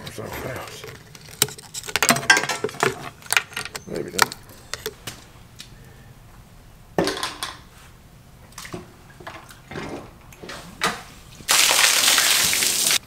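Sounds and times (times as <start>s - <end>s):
knocks and scrapes: 0.0s - 5.3s.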